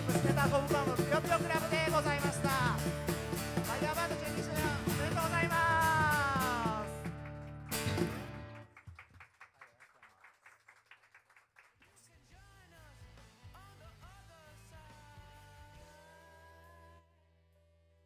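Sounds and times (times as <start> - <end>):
live band playing: 0.0 - 8.7
people clapping: 4.5 - 12.4.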